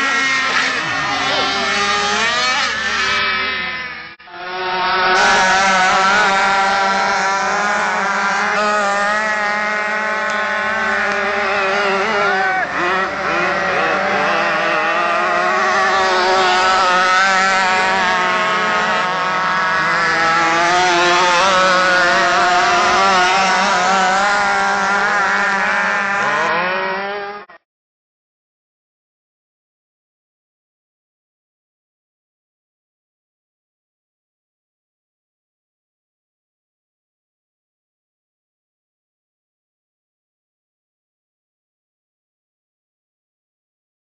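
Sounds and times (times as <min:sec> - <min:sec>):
model powerboat engines at high revs: 0:00.0 - 0:27.6.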